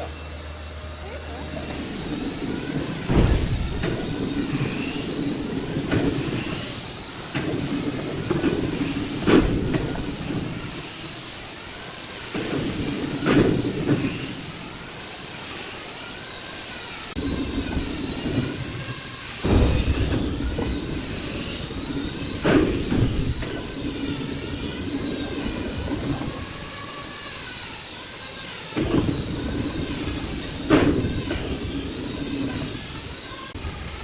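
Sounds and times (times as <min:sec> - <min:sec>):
machine running in bursts: 0:00.0 - 0:34.0
sharp knocks: 0:02.8 - 0:05.1, 0:17.6 - 0:25.6, 0:28.8 - 0:31.8.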